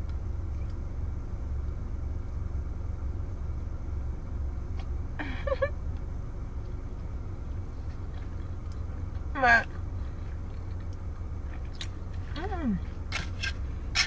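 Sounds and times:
car cabin rumble: 0.0 - 14.0.

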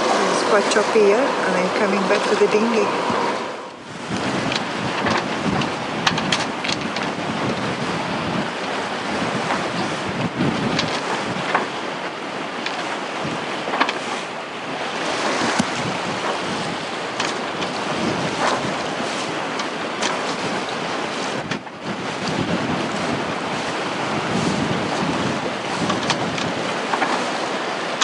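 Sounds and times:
choppy sea rushing: 0.0 - 28.0
wind buffeting microphone: 0.0 - 28.0.

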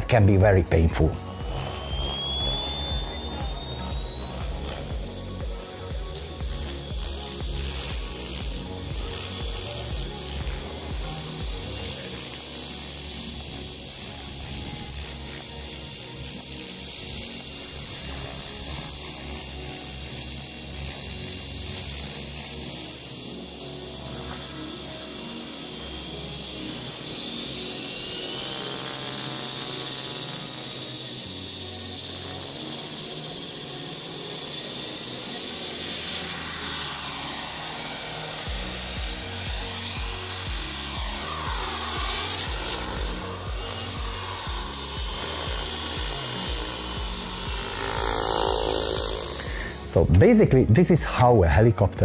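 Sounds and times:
background music with steady beat: 0.0 - 52.0
jet turbine whine: 0.0 - 52.0
rushing hiss of air: 23.7 - 50.0.

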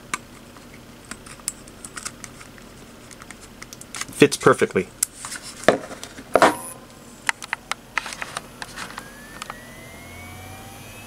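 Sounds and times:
hard drive spinning up whine: 7.8 - 11.0.

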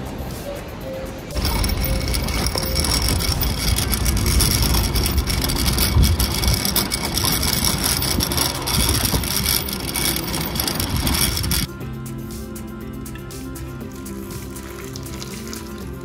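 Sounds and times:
shopping trolley rattling: 1.3 - 11.7.

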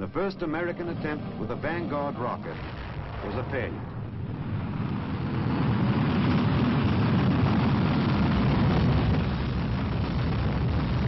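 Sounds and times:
rocket engine rumbling: 0.0 - 11.0.

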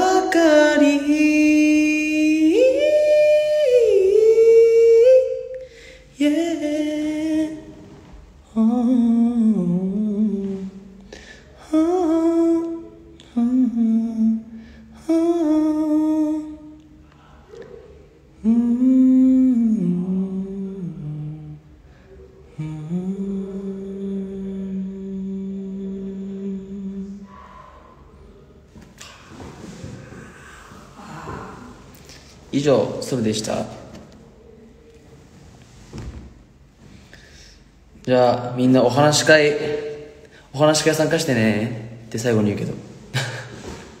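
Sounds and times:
man humming a melody: 0.0 - 7.6, 11.6 - 16.8, 18.4 - 21.6, 22.4 - 27.3.

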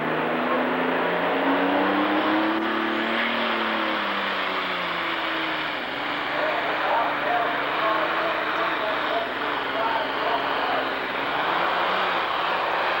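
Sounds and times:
diesel tractor engine revving: 0.0 - 13.0.

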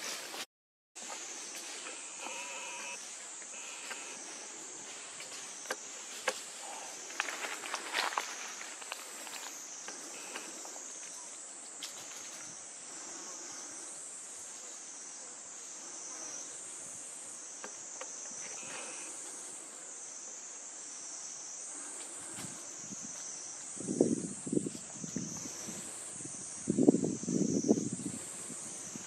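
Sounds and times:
high-pitched insect chorus: 1.0 - 29.0.

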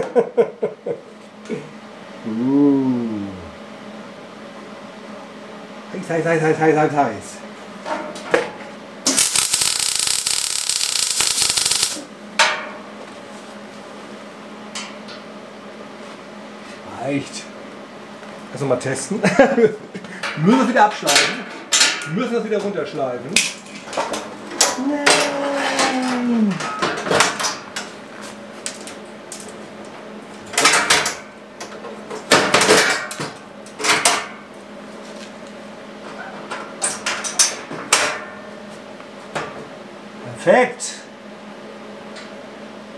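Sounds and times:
arc welding crackle: 9.1 - 12.1.

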